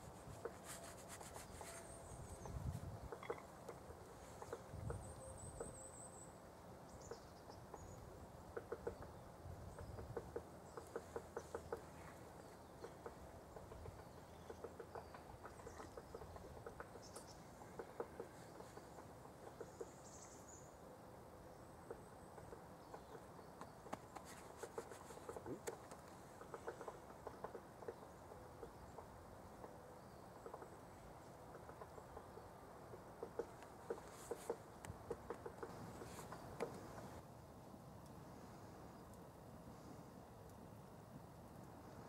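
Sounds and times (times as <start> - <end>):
bird chirping: 0.4 - 20.8.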